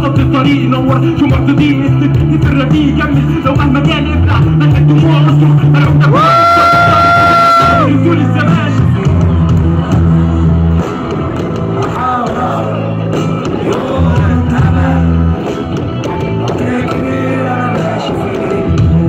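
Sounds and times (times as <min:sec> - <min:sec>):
deep bass notes: 0:00.0 - 0:19.0
live rock band playing: 0:00.0 - 0:19.0
person singing: 0:11.8 - 0:19.0.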